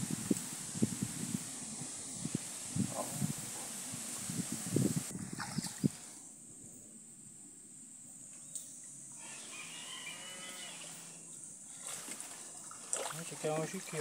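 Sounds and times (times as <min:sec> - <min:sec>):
constant high hiss: 0:00.0 - 0:14.0
faint drawn-out animal call: 0:09.1 - 0:12.0.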